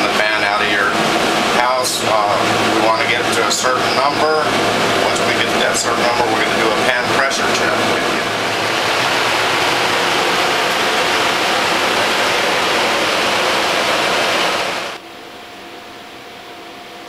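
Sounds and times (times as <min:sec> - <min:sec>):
fan rushing air: 0:00.0 - 0:17.0.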